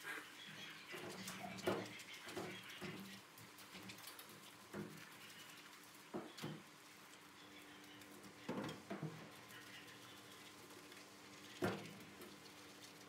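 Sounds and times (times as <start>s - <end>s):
knocks and rubs in a tub: 0.9s - 5.4s.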